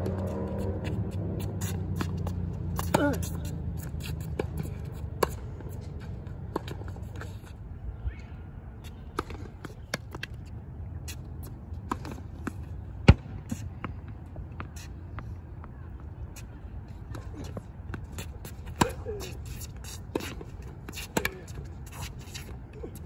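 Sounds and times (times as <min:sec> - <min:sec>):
sneakers scuffing court: 0:00.0 - 0:07.6, 0:16.4 - 0:23.0
tennis ball hits and bounces: 0:19.9 - 0:21.6.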